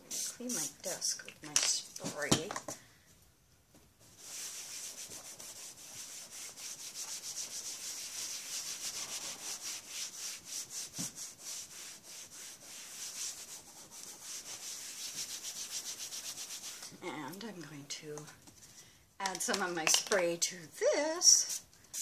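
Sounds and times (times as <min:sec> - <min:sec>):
paper towel scrubbing plastic mat: 0:04.0 - 0:17.0.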